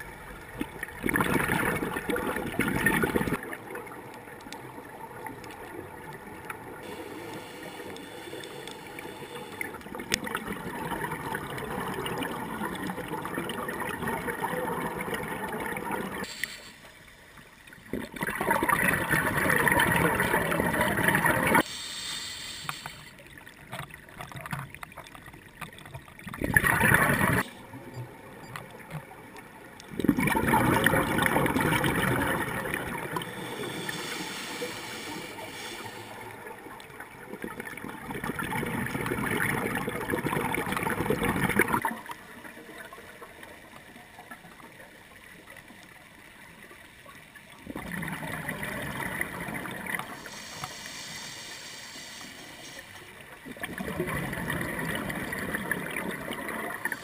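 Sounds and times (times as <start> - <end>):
bubbles gurgling underwater: 0.0 - 6.9, 9.7 - 16.3, 17.8 - 21.7, 23.4 - 29.0, 29.8 - 34.0, 36.5 - 44.7, 47.5 - 50.2, 53.4 - 57.0
scuba regulator breathing: 6.8 - 9.9, 16.3 - 17.0, 21.6 - 23.2, 32.9 - 36.6, 50.0 - 53.2.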